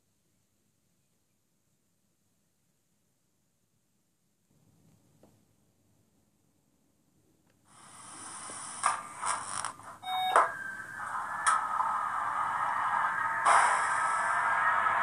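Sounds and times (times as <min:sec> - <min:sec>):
steady hiss from speaker: 0:07.4 - 0:15.0
short beep: 0:10.0 - 0:10.6.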